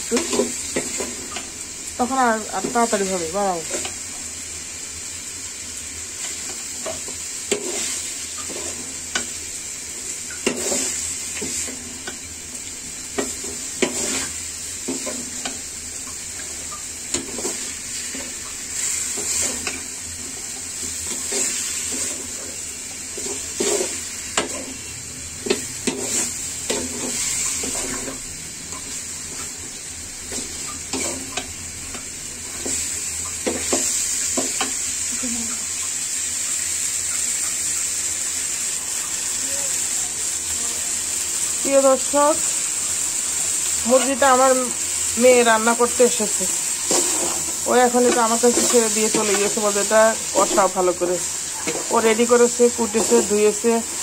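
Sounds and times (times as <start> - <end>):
chicken sizzling in hot oil: 0.0 - 54.0
spatula scraping a pan: 6.3 - 9.3, 10.4 - 11.8, 13.2 - 15.6, 21.0 - 24.8, 30.3 - 31.5, 46.8 - 49.5.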